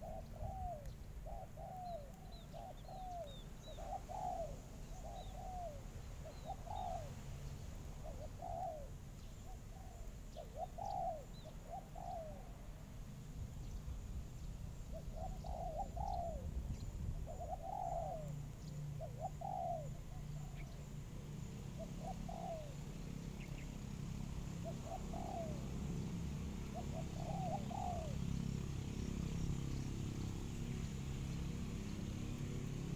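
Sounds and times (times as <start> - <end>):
doves cooing: 0.0 - 7.2, 8.0 - 12.7, 14.8 - 16.6, 17.2 - 23.6, 24.6 - 29.8.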